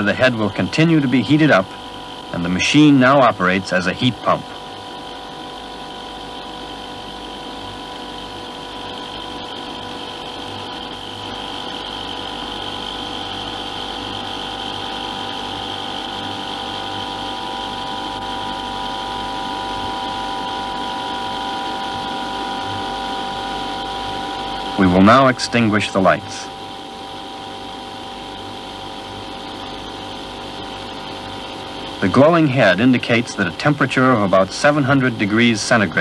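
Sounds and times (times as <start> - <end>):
machine humming and whining: 0.0 - 36.0.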